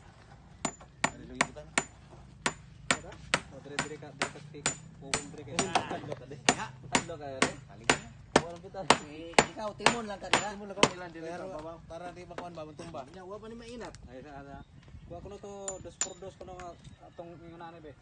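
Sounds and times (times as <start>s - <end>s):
hammer striking wood: 0.6s - 5.9s, 6.5s - 11.0s
people talking: 3.0s - 13.2s.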